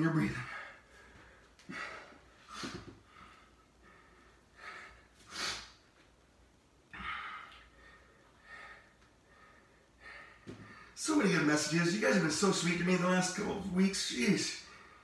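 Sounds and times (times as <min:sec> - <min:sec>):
man breathing hard: 0:00.3 - 0:05.8, 0:06.9 - 0:11.0.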